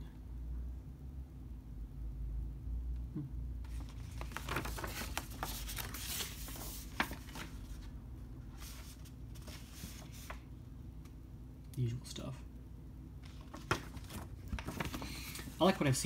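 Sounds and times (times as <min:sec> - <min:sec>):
paper pages turning and rustling: 0:03.7 - 0:07.9, 0:08.5 - 0:10.5, 0:13.2 - 0:16.0.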